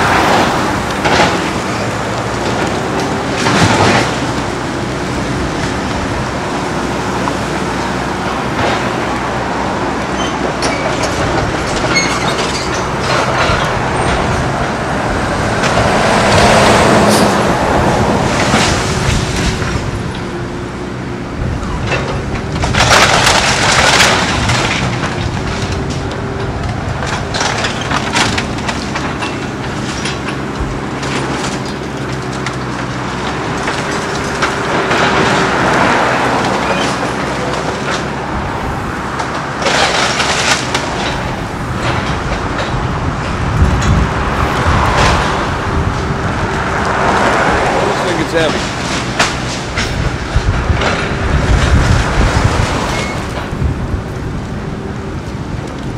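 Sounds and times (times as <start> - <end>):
heavy diesel machinery running: 0.0 - 55.9
wooden debris cracking and crashing: 0.1 - 9.5, 21.8 - 55.9.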